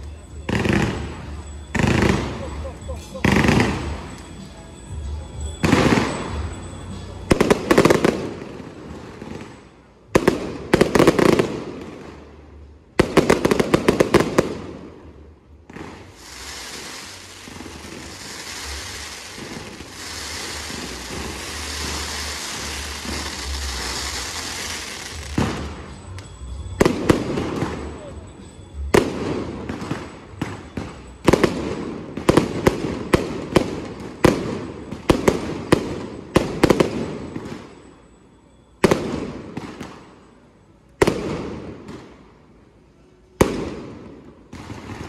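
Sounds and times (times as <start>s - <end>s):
hissing fountain fireworks: 0.0s - 45.0s
firework bangs with crackling: 5.5s - 6.7s, 7.3s - 37.9s, 38.8s - 40.0s, 43.4s - 45.0s.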